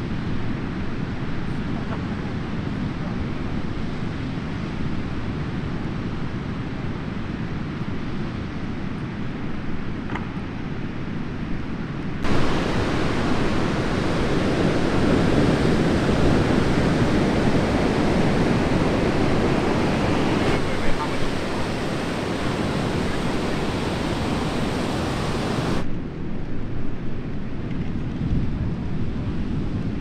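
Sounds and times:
wind buffeting microphone: 0:00.0 - 0:30.0
ocean surf breaking: 0:12.2 - 0:25.8.

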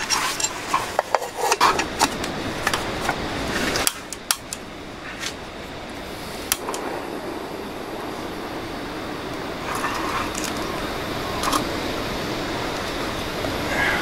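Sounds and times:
metal clicks and clinks: 0:00.0 - 0:00.8
gas burner hissing: 0:00.0 - 0:14.0.

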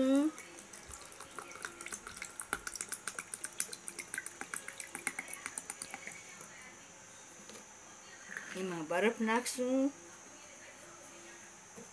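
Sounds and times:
water pouring into glass: 0:00.4 - 0:06.2.

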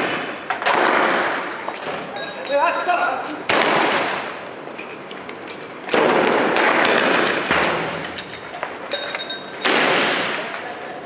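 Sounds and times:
gunshot bangs with rolling echo: 0:00.0 - 0:01.6, 0:03.5 - 0:04.4, 0:05.9 - 0:08.0, 0:09.6 - 0:10.5.

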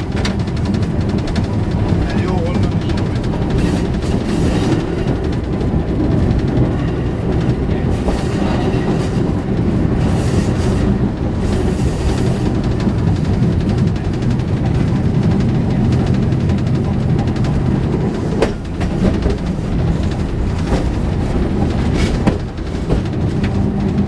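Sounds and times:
tram wheels rumbling on rails: 0:00.0 - 0:24.0.

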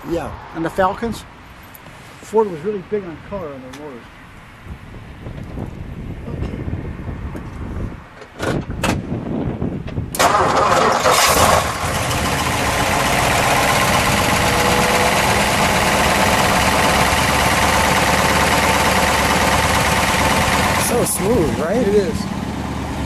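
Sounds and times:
car engine starting and idling: 0:10.1 - 0:23.0.

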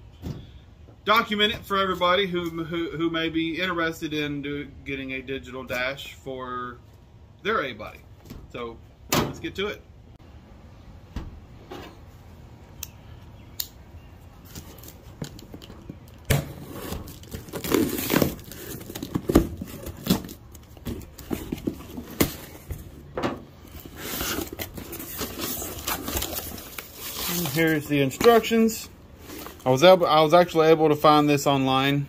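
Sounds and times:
packing paper crinkling: 0:14.4 - 0:22.6, 0:23.8 - 0:28.5
tape tearing: 0:14.4 - 0:22.6, 0:23.7 - 0:28.5.

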